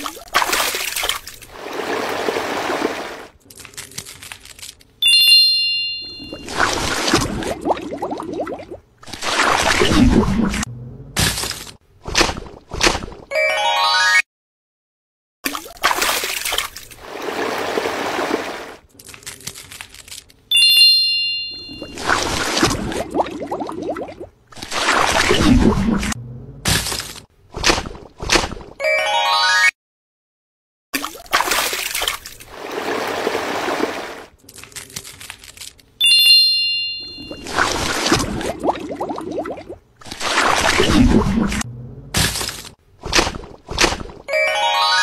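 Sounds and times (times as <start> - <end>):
watery trickling rush: 0.4 - 3.3, 16.2 - 18.8
bright chime ringing: 5.0 - 6.5, 20.5 - 22.0, 36.0 - 37.4, 44.3 - 45.0
rushing water-like noise: 17.0 - 18.8.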